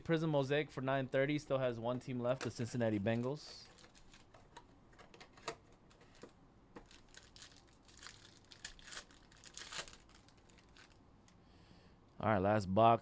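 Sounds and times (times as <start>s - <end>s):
foil pack crinkling and tearing: 3.6s - 4.3s, 6.1s - 11.0s.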